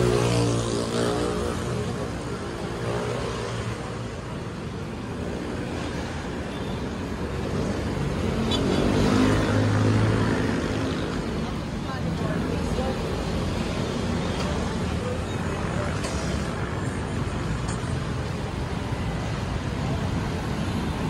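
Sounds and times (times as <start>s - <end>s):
cars and motorcycles passing: 0.0s - 21.0s.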